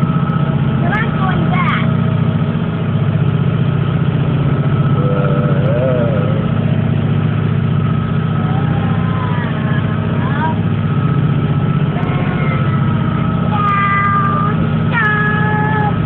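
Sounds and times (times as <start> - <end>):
ferry engines droning: 0.0 - 16.0.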